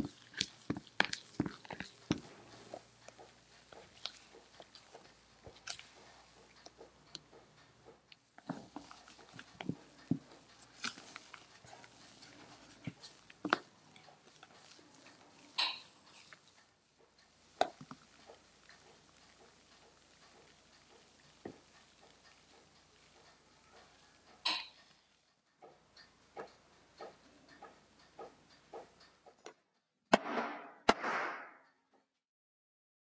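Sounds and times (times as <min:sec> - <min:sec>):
wet squishes of batter: 0:00.0 - 0:25.0.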